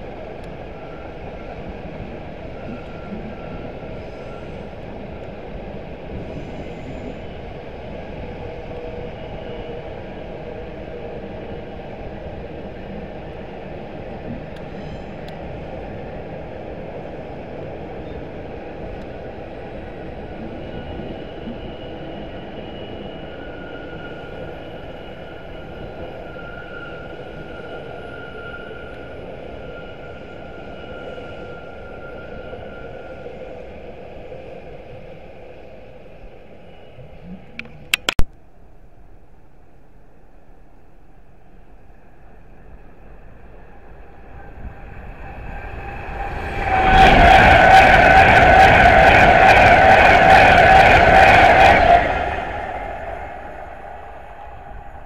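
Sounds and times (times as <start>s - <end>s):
high-pitched wheel squeal: 6.2s - 7.5s, 14.6s - 15.7s, 44.8s - 55.0s
train wheels rumbling on rails: 44.2s - 55.0s.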